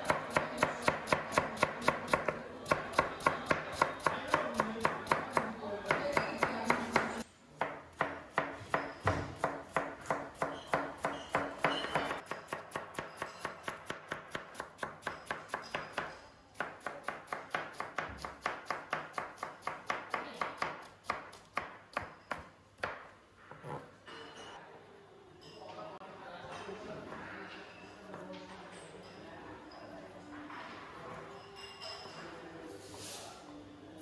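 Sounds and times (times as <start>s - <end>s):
knife chopping cabbage on board: 0.0s - 23.0s.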